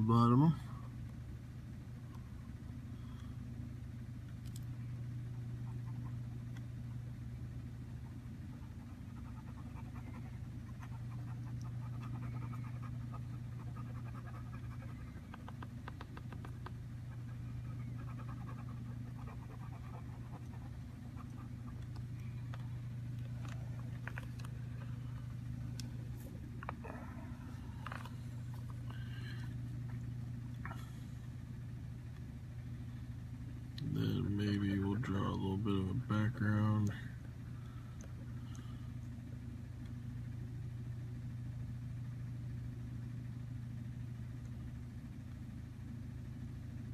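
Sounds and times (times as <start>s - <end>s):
steady low hum: 0.0s - 46.9s
marker pen scratching on paper: 8.6s - 21.8s.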